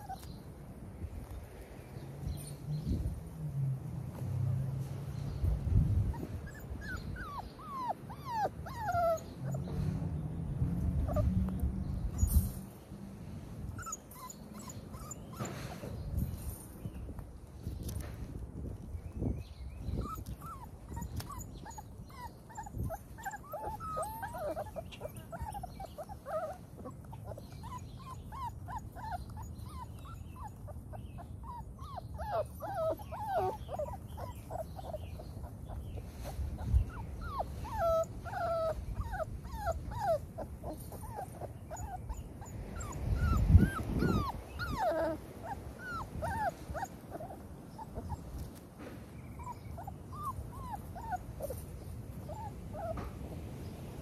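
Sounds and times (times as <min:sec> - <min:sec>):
puppies whining and whimpering: 0:00.0 - 0:00.4, 0:06.0 - 0:09.9, 0:11.0 - 0:12.6, 0:13.7 - 0:16.2, 0:19.7 - 0:53.8.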